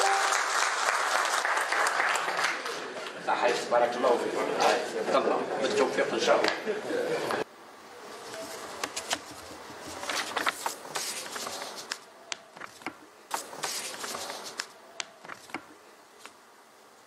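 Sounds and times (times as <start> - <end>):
hissy room hubbub: 0.0 - 17.0.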